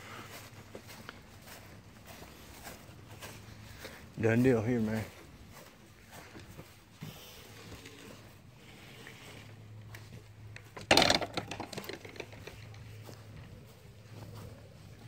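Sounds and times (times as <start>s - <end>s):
wooden gate clacking shut: 10.8s - 12.3s.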